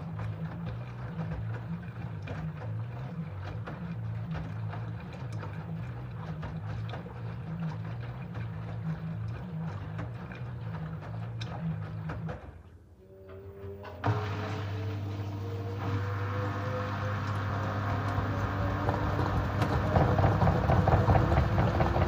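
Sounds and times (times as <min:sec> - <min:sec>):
wet laundry sloshing: 0:00.0 - 0:12.6
washing machine drum motor humming: 0:00.0 - 0:22.0.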